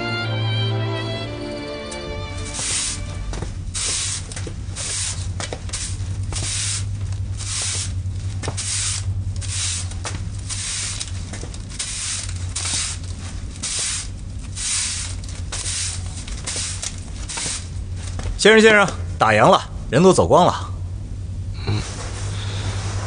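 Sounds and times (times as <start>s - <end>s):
low steady hum: 0.0s - 23.0s
broom sweeping a floor: 2.2s - 18.3s, 21.7s - 23.0s.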